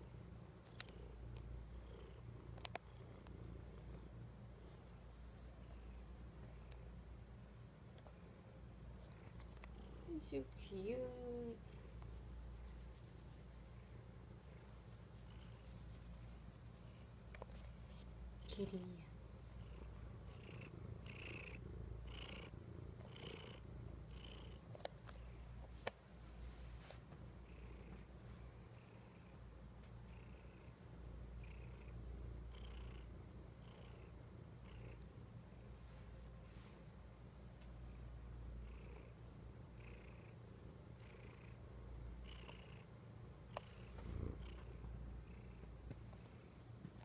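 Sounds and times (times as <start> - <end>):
cat purring: 0.6 - 6.8, 8.9 - 25.6, 30.0 - 35.6, 43.5 - 46.4.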